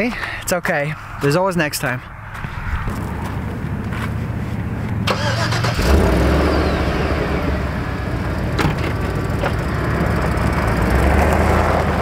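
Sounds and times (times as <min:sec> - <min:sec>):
car engine idling: 0:03.3 - 0:11.0.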